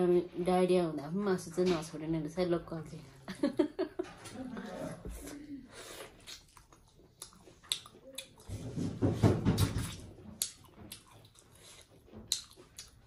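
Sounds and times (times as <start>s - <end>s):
wet chewing: 5.9s - 8.7s, 9.5s - 13.0s
lip smacks and mouth clicks: 6.2s - 8.5s, 9.6s - 13.0s.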